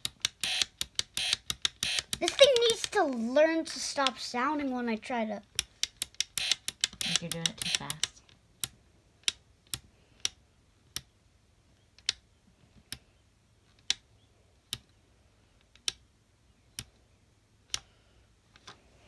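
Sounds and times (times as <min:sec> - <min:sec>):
strobe flash clicks: 0:00.2 - 0:02.2, 0:06.2 - 0:08.1.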